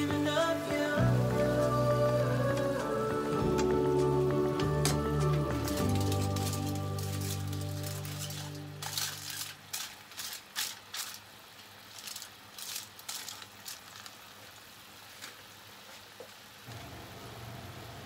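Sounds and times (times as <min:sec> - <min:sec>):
background music: 0:00.0 - 0:09.6
aluminium foil crinkling: 0:00.0 - 0:16.1
liquid boiling hiss: 0:00.0 - 0:18.0.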